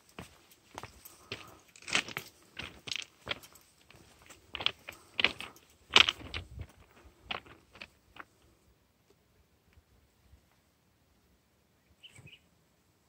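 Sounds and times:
footsteps crunching on gravel: 0.0s - 8.4s.

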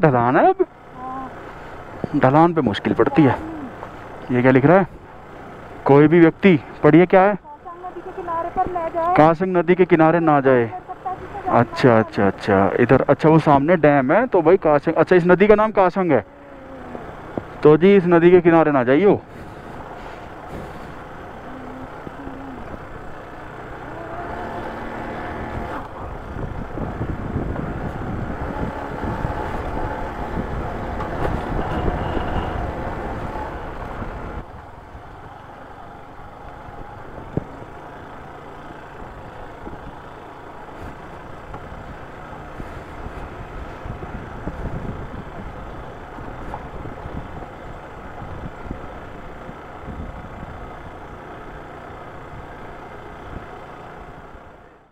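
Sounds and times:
road and rattle noise: 0.0s - 54.9s
motorcycle engine running: 16.1s - 54.9s.

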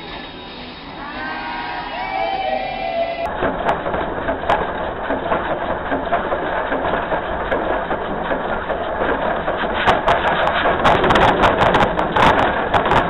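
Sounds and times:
steam locomotive running: 0.0s - 13.0s.

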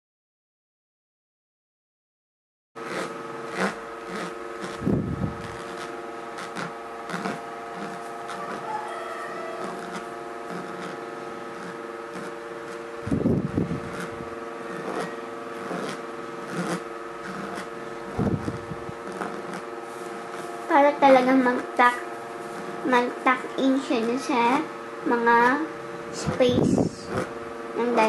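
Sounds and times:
electrical hum: 2.8s - 28.0s.

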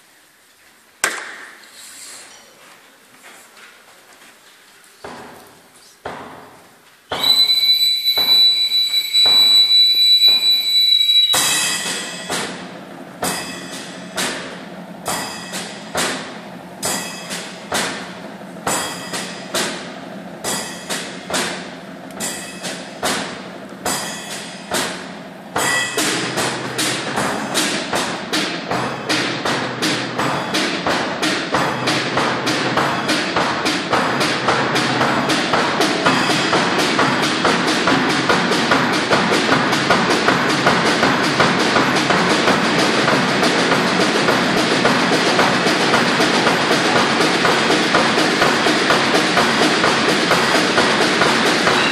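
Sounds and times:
high whistle: 7.1s - 12.3s, 51.7s - 51.9s
percussion sticks striking beats: 7.1s - 51.9s.

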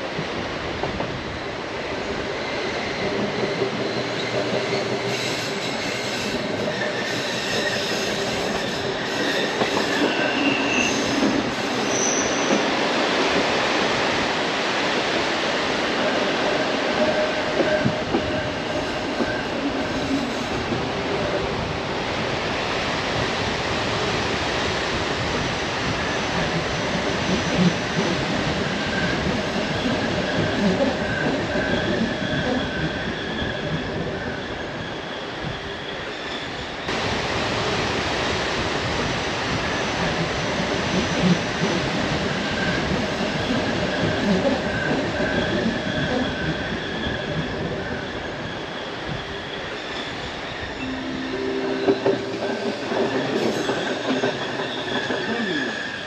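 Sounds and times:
train wheels rumbling on rails: 0.0s - 56.0s
high wheel squeal: 43.8s - 56.0s.

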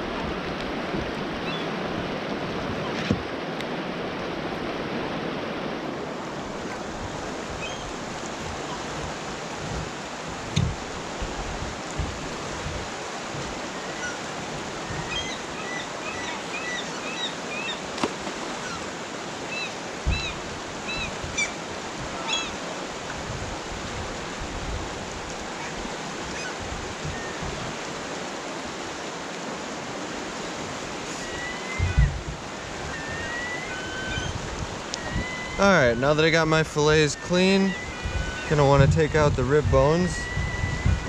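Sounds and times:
river rushing: 0.0s - 41.0s
low thumps: 8.4s - 13.5s.

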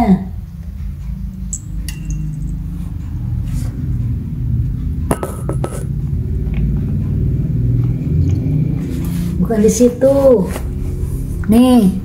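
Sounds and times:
spoon clinking on tile floor: 1.4s - 2.8s.

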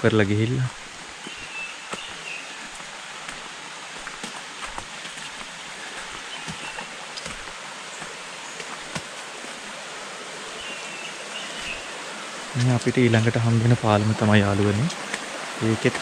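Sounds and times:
stream rushing: 0.0s - 16.0s
footsteps on dirt trail: 0.7s - 9.8s, 10.5s - 11.9s.

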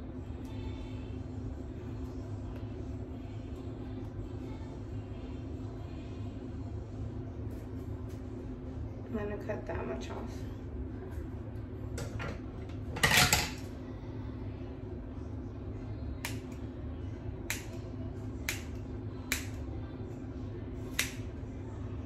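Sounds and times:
steady low hum: 0.0s - 22.0s
scissors snipping hair: 16.2s - 16.6s, 17.4s - 17.8s, 18.4s - 19.6s, 20.9s - 21.3s.

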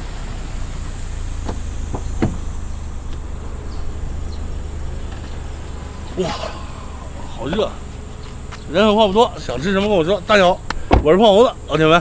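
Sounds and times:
insect buzzing: 0.6s - 12.0s
low rumble: 0.9s - 10.7s
car door latch clicks: 1.4s - 2.5s.

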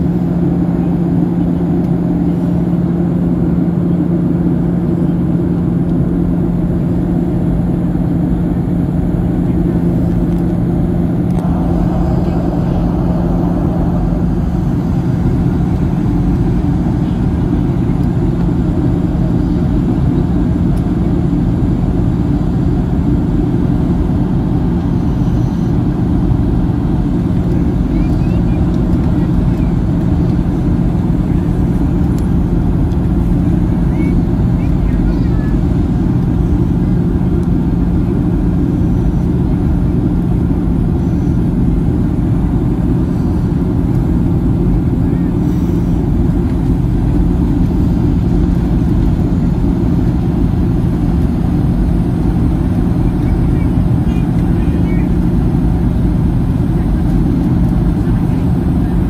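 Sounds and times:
constant low hum: 0.0s - 59.0s
jet engine cabin noise: 0.0s - 59.0s.

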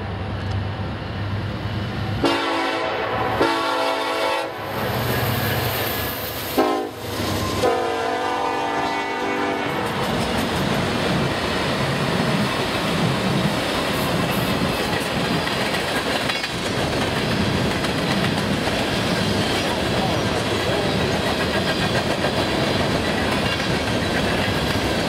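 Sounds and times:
train wheels on rails: 0.0s - 25.0s
locomotive air horn blasts: 2.2s - 4.7s, 6.6s - 9.8s.

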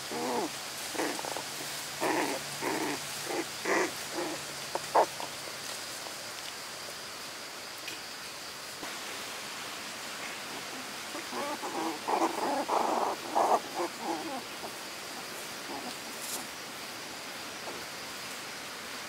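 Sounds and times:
rough animal calls: 0.0s - 5.6s, 10.7s - 16.5s
high insect-like hum: 0.0s - 19.0s.

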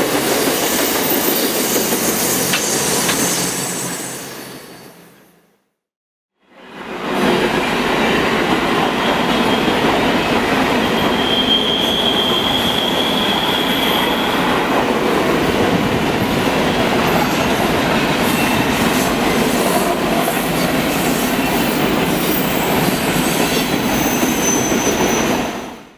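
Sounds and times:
freight train rumbling past: 0.0s - 5.4s, 6.5s - 25.9s
high wheel squeal: 0.3s - 5.3s, 10.8s - 14.5s, 21.1s - 25.5s.

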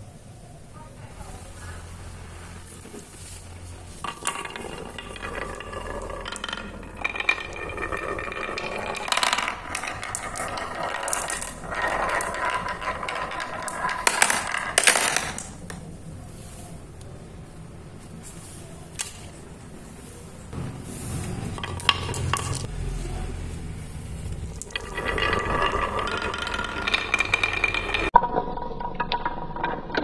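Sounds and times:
marbles rolling in wooden groove: 1.9s - 16.8s, 21.2s - 22.9s, 24.1s - 30.0s
marbles clattering against wooden pegs: 2.8s - 16.4s, 18.9s - 19.4s, 21.4s - 22.7s, 24.3s - 30.0s
marbles dropping into plastic bowl: 3.9s - 15.9s, 21.6s - 22.7s, 24.4s - 30.0s.

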